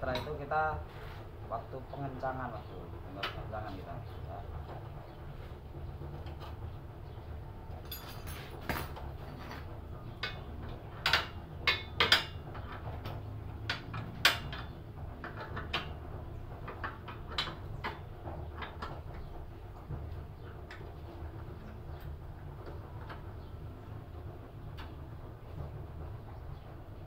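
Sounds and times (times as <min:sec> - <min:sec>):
wrench clinking on steel frame: 0:07.8 - 0:09.0.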